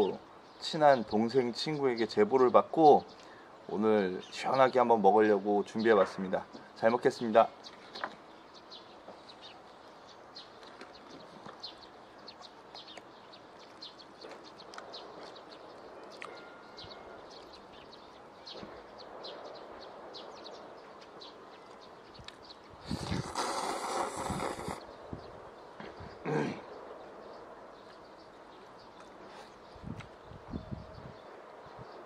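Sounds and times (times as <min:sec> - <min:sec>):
bird chirps: 0:00.0 - 0:32.0
person slurping noodles: 0:22.8 - 0:24.8.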